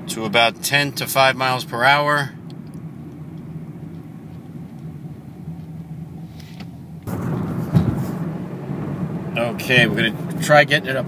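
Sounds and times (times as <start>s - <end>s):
car engine and road hum: 0.0s - 11.0s
thump: 7.1s - 8.2s
loud rushing noise: 7.1s - 10.6s.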